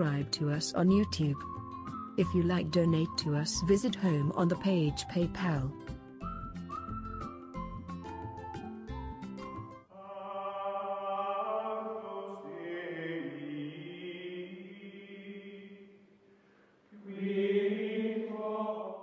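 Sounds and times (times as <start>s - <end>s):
held choral chords: 9.9s - 16.1s, 16.9s - 19.0s.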